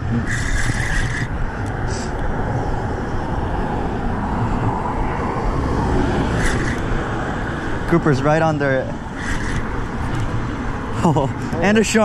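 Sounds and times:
wind rumble on microphone: 0.0 - 8.2
road traffic noise: 0.0 - 12.0.

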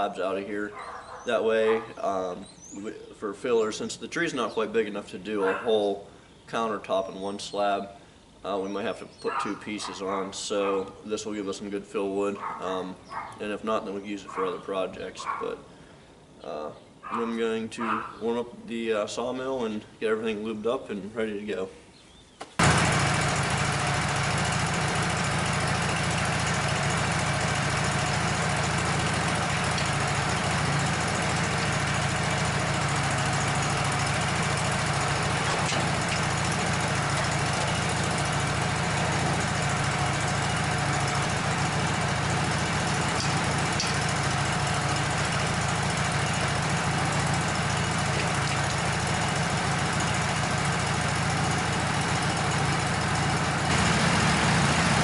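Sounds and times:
sawmill engine idling: 22.6 - 55.0.

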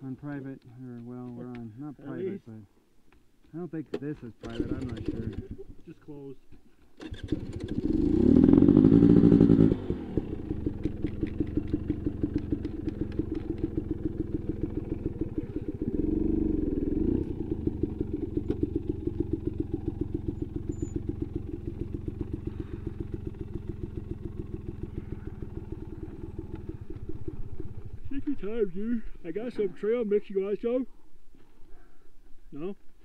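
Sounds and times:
dirt bike engine revving and idling: 4.4 - 5.7, 7.1 - 29.5.

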